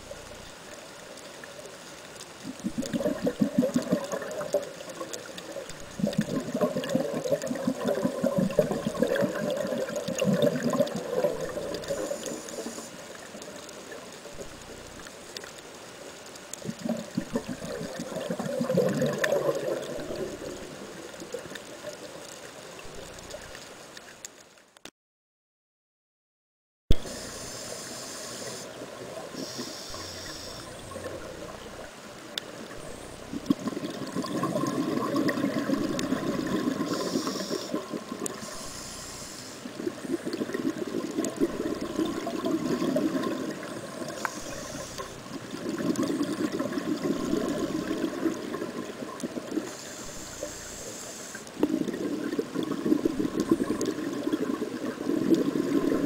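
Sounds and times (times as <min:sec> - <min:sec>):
bubbling exhalation underwater: 0:02.4 - 0:12.5, 0:16.6 - 0:21.0, 0:32.8 - 0:38.6, 0:39.8 - 0:49.7, 0:51.6 - 0:56.0
regulator inhalation hiss: 0:11.8 - 0:13.2, 0:27.0 - 0:30.8, 0:36.7 - 0:39.8, 0:43.9 - 0:45.3, 0:49.6 - 0:51.6.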